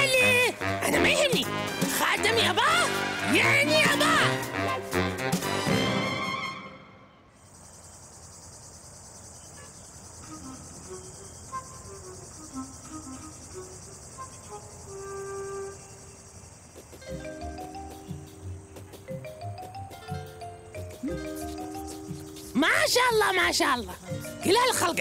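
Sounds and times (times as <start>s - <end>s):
music: 0.0s - 7.2s, 10.2s - 16.2s, 16.8s - 25.0s
insect chirring: 7.3s - 25.0s
faint melodic notes: 17.0s - 25.0s.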